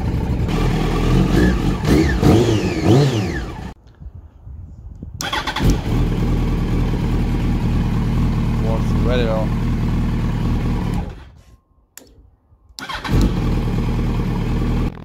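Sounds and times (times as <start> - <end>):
motorcycle engine revving and idling: 0.0 - 3.8, 5.3 - 11.4, 12.9 - 15.0.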